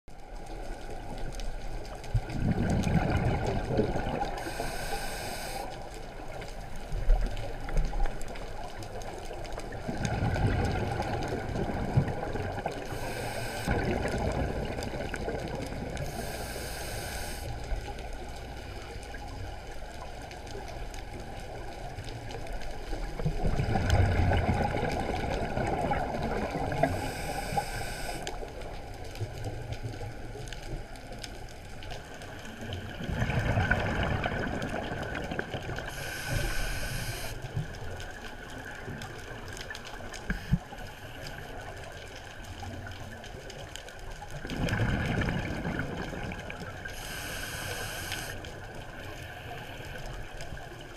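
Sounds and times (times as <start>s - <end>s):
burble of exhaled bubbles: 0.5s - 4.8s, 6.0s - 16.5s, 17.7s - 27.6s, 32.0s - 36.2s, 37.3s - 47.2s
hissing regulator inhale: 4.4s - 5.7s, 12.9s - 13.7s, 16.0s - 17.7s, 26.8s - 28.4s, 35.9s - 37.4s, 46.9s - 48.4s.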